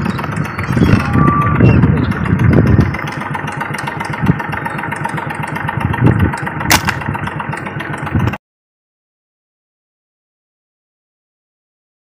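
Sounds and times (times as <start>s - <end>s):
engine running: 0.0s - 8.4s
sharp click: 6.7s - 7.0s.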